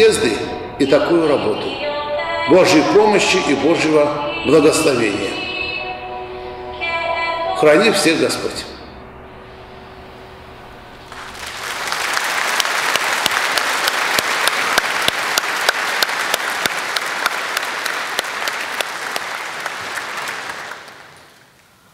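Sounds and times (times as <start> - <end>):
close single claps: 11.1 - 21.7
large audience applauding: 11.1 - 21.7.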